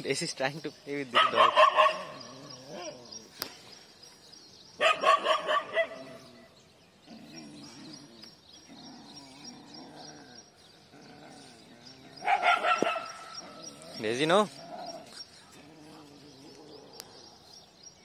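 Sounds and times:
dog barking: 0:01.1 - 0:02.2, 0:04.8 - 0:06.2, 0:12.2 - 0:13.5.

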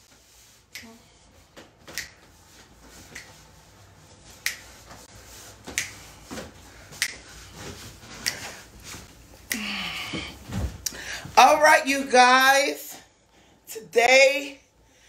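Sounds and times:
fingers snapping: 0:02.0 - 0:02.2, 0:05.8 - 0:06.0.

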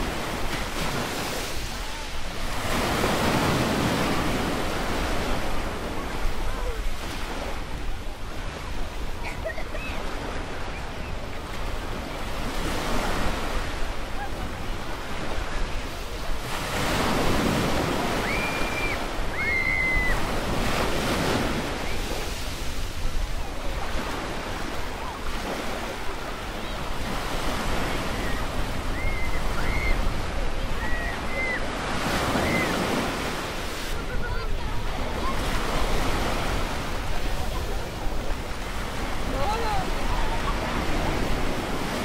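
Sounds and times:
waves washing onto beach: 0:00.0 - 0:42.0.

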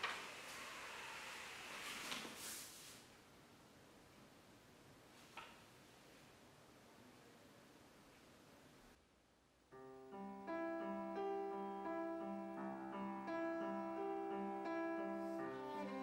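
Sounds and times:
faint room hiss: 0:00.0 - 0:16.0
piano-led score music: 0:09.7 - 0:16.0.

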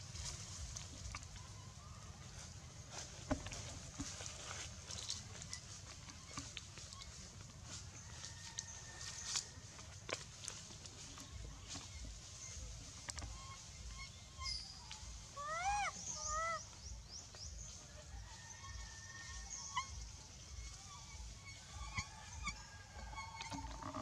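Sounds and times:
young monkey crying: 0:15.3 - 0:16.6.

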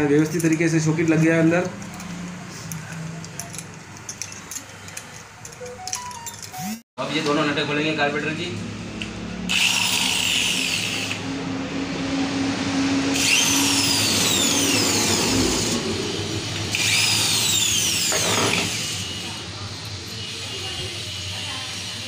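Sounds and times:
electric drill motor whine: 0:09.5 - 0:11.2, 0:13.1 - 0:19.5.

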